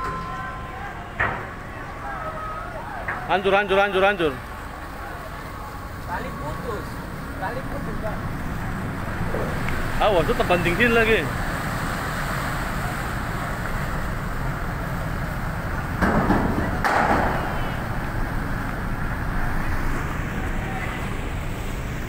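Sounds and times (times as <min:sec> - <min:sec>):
harbour noise: 0:00.0 - 0:22.0
steady low rumble: 0:04.4 - 0:11.7.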